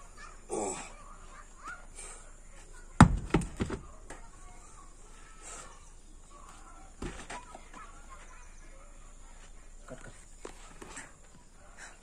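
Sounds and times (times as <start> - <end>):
heavy stone thudding on dirt: 3.0 - 3.9, 7.0 - 7.4.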